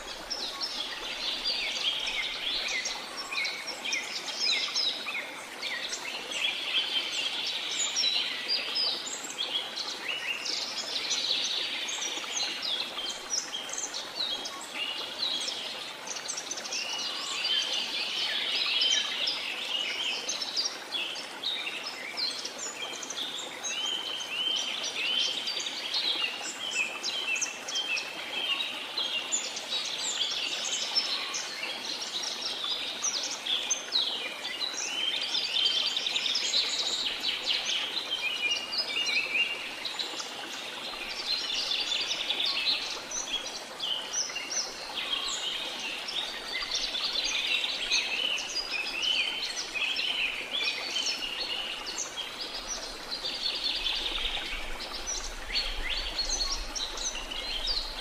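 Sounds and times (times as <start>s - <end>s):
faint steady hiss: 0.0s - 58.0s
songbirds chirping: 0.0s - 58.0s.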